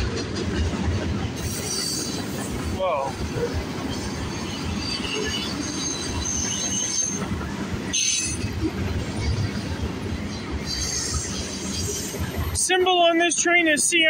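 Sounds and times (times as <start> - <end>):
train wheels rumbling on rail: 0.0 - 14.0
high-pitched wheel squeals: 4.4 - 7.3, 7.9 - 8.6.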